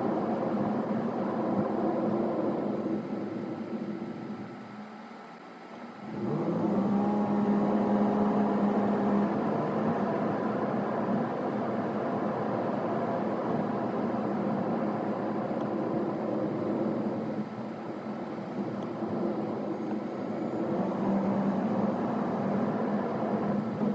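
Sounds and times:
car engine hum: 0:00.0 - 0:23.9
road noise rushing: 0:06.0 - 0:23.9.

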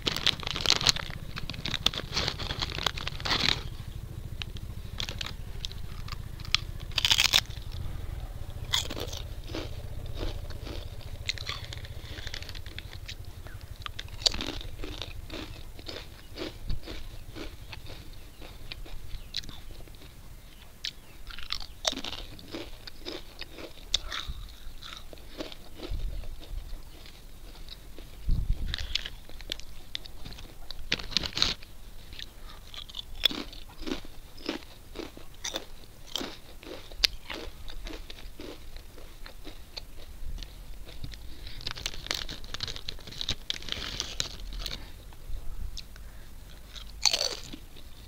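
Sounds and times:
chip packet crinkling: 0:00.0 - 0:07.7, 0:08.8 - 0:19.6, 0:40.8 - 0:44.9, 0:46.7 - 0:47.9
chips crunching as chewed: 0:00.0 - 0:07.8, 0:08.5 - 0:45.0, 0:45.8 - 0:48.0.

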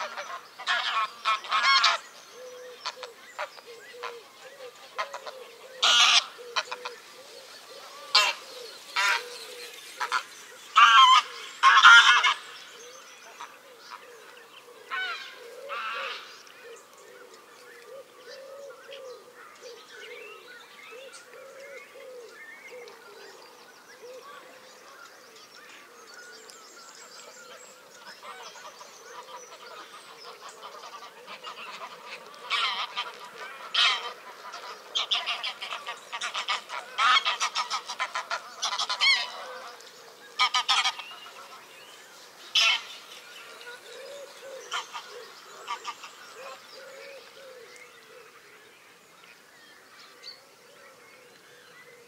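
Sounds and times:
geese honking: 0:00.0 - 0:02.1, 0:02.8 - 0:07.1, 0:07.8 - 0:12.6, 0:28.2 - 0:41.7, 0:42.5 - 0:43.3.

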